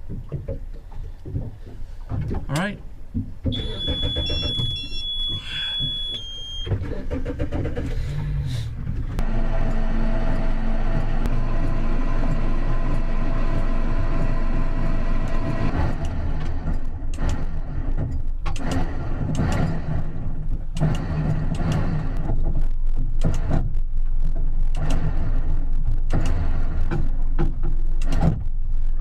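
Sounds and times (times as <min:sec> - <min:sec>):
boat engine running: 0:06.6 - 0:28.7.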